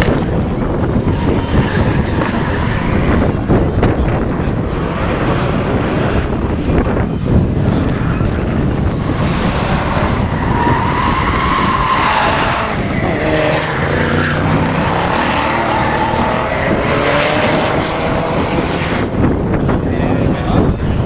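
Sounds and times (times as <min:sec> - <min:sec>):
car engines revving: 0:00.0 - 0:21.0.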